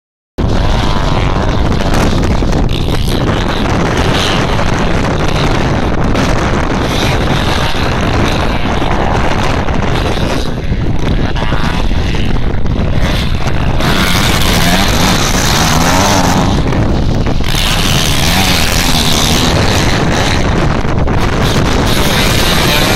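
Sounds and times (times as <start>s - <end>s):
motocross bike engines revving: 0.4s - 22.9s
wind buffeting microphone: 0.4s - 22.9s.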